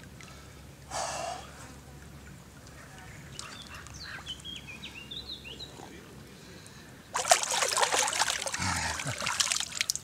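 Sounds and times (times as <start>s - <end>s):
water splashing: 7.1s - 10.0s.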